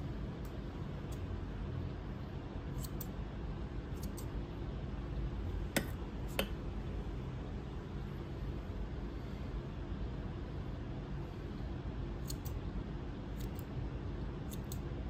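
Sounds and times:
steady low hum: 0.0s - 15.0s
scissors snipping hair: 2.7s - 3.2s, 3.9s - 4.3s, 12.2s - 12.6s, 13.3s - 13.7s, 14.4s - 14.9s.

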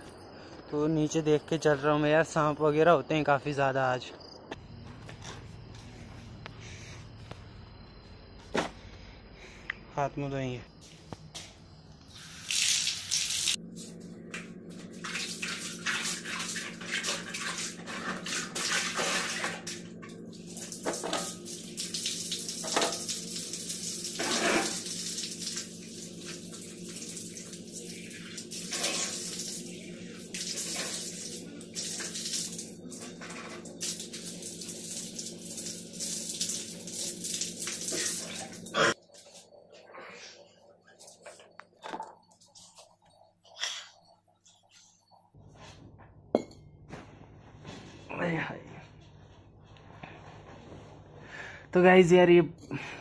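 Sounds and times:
water splashing: 14.9s - 19.8s.

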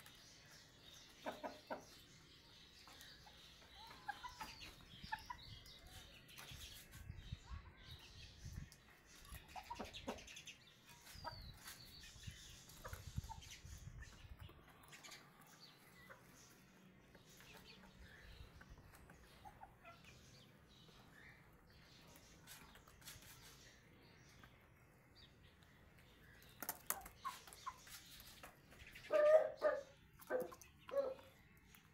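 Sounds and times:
chickens clucking faintly: 0.0s - 31.9s.

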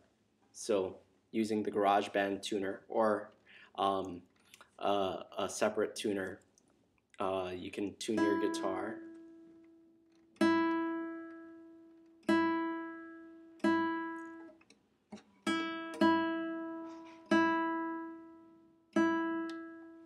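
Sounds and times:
guitar string plucked: 8.2s - 9.2s, 19.0s - 19.9s.

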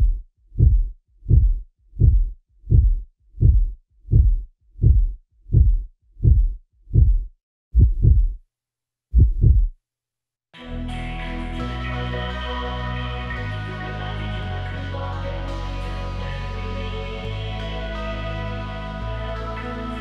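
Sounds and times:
heartbeat double thumps: 0.0s - 8.4s, 9.1s - 9.8s.

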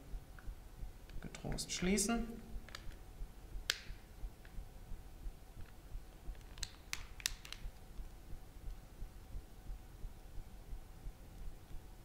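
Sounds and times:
plastic clips clicking: 2.7s - 3.0s, 6.4s - 7.6s.

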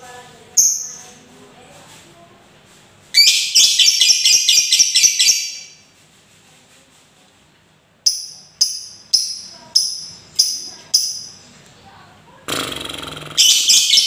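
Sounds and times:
lovebird chattering: 3.2s - 5.8s, 8.0s - 11.5s, 12.7s - 14.0s
sharp shrill bird calls: 3.2s - 5.8s, 13.4s - 14.0s.

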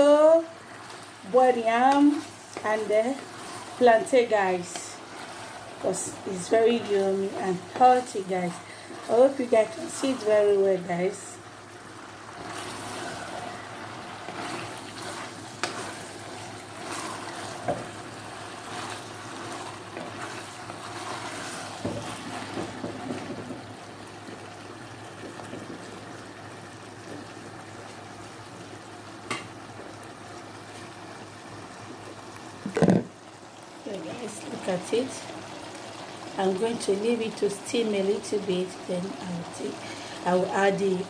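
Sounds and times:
food sizzling in a pot: 0.0s - 41.0s
spatula stirring: 0.6s - 10.6s, 12.2s - 23.3s.

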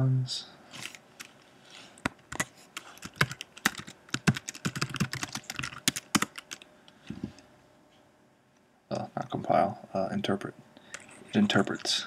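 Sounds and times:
keyboard typing: 2.1s - 6.7s.

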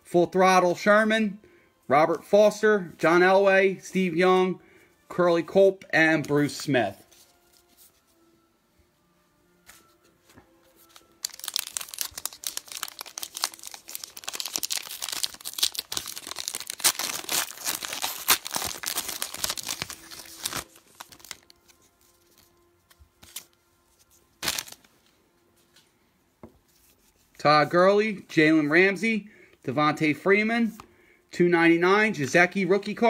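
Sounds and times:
wrapper tearing and crinkling: 10.8s - 22.5s, 23.2s - 23.5s, 24.4s - 24.9s.

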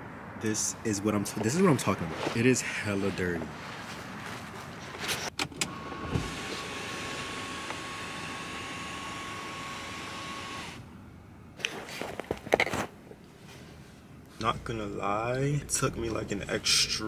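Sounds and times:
electric window motor whining: 5.5s - 10.9s.

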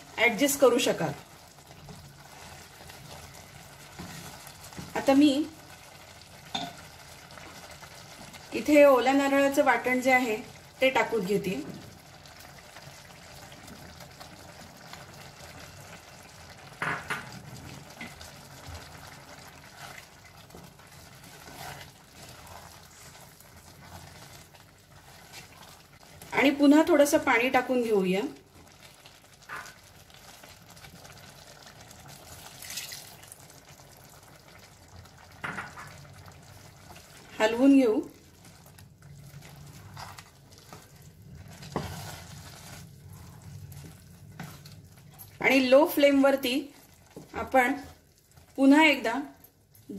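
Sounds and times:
pot simmering with bubbling hiss: 0.0s - 49.9s
water pouring into a pot: 28.4s - 44.2s.

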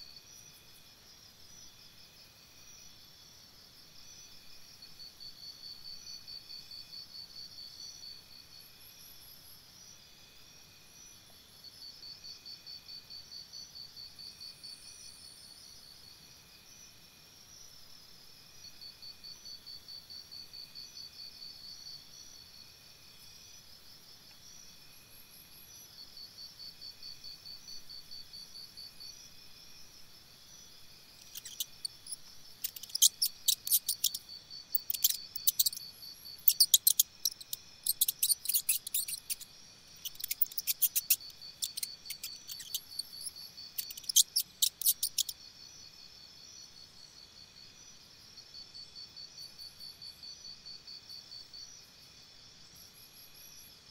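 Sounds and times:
crickets trilling: 0.0s - 53.8s
sharp high chirps: 31.2s - 34.2s, 34.8s - 35.8s, 36.5s - 39.4s, 40.0s - 43.0s.

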